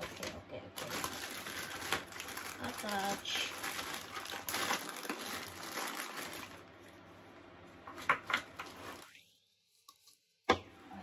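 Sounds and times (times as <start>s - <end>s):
rustling and scraping of parts: 7.8s - 9.2s.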